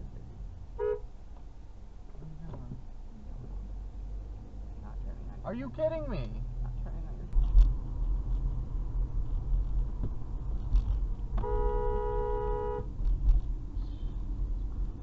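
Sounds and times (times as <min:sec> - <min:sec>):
engine and road noise: 0:00.0 - 0:15.0
two-tone car horn: 0:00.8 - 0:01.0, 0:11.4 - 0:12.9.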